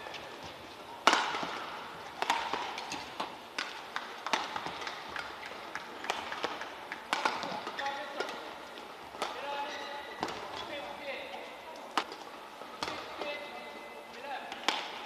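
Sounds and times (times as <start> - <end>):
rackets hitting shuttlecock: 0.0 - 15.0.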